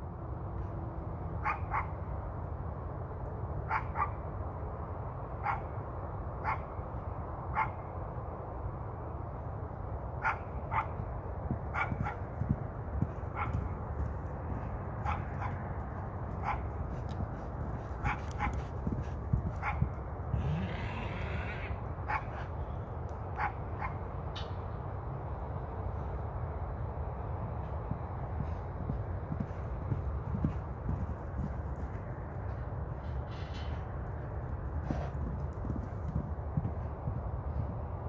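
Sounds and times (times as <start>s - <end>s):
dog barking: 1.4s - 1.9s, 3.7s - 4.2s, 5.4s - 5.6s, 10.2s - 10.9s, 19.6s - 19.8s.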